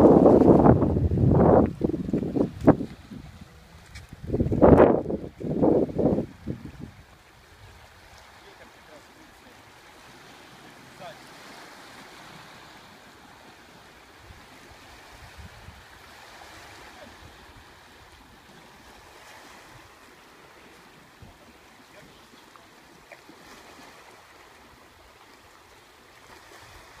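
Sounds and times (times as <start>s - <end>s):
wind on microphone: 0.0s - 8.3s, 14.1s - 20.0s
sea surf on rocks: 0.0s - 27.0s.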